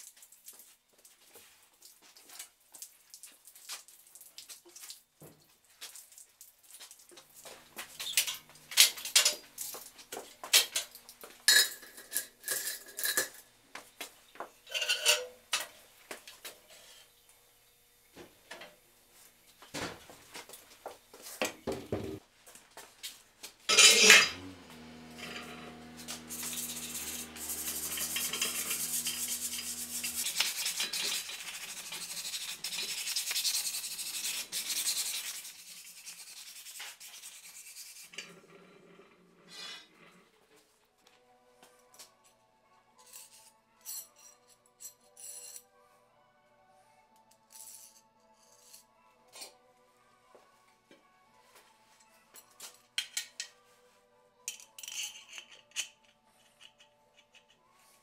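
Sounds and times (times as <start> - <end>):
metal clicks and clanks: 8.0 - 9.7
steady hum: 24.3 - 30.5
sandpaper rubbing on wood: 26.0 - 38.1.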